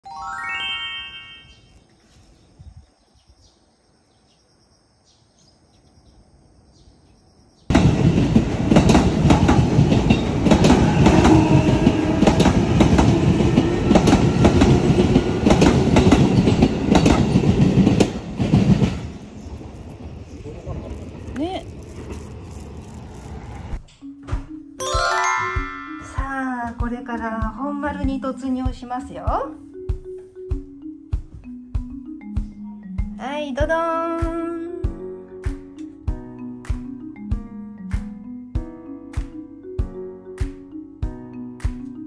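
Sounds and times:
rail joint clicks: 7.7 - 19.0
train wheels roaring on rail: 7.7 - 23.8.

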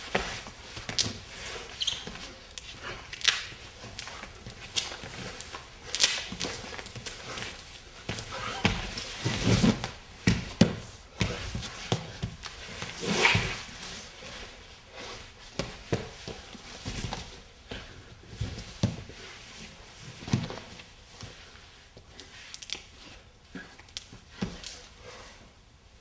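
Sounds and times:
hands and feet thumping on floor: 3.9 - 13.9, 15.5 - 19.1.

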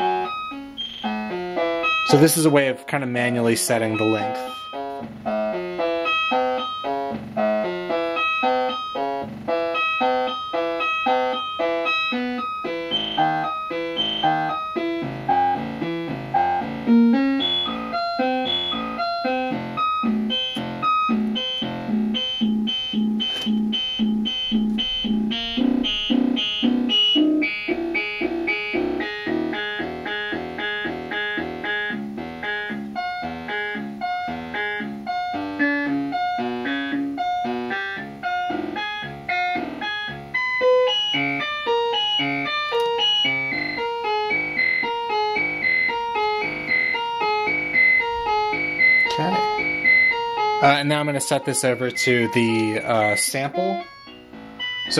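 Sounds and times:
synthesizer sequence of short notes: 12.8 - 30.8.

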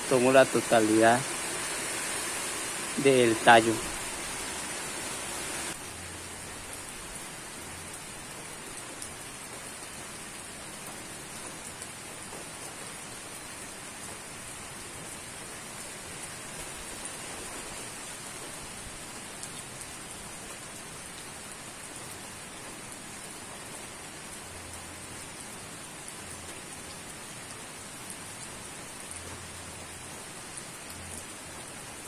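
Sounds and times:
steady rain hiss: 0.0 - 32.0.

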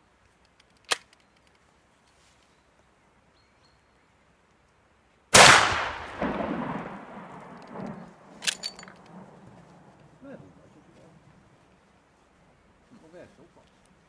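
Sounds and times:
gunshot with rolling echo: 5.3 - 9.3.

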